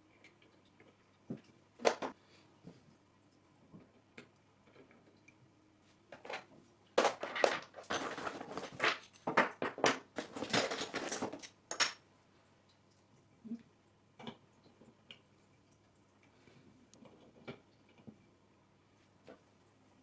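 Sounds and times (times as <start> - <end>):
crunching rustling and clattering: 6.1 - 12.0.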